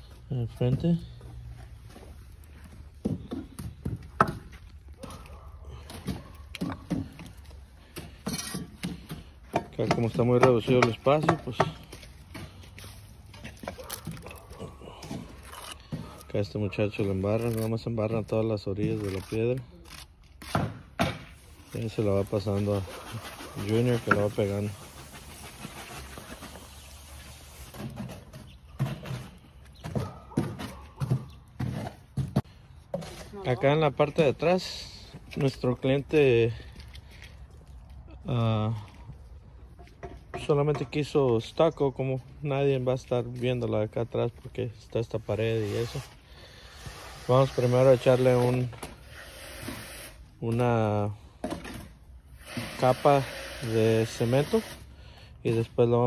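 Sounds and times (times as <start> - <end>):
trowel scraping stone: 8.1 - 9.0, 15.4 - 16.0, 21.8 - 28.1, 45.4 - 50.2.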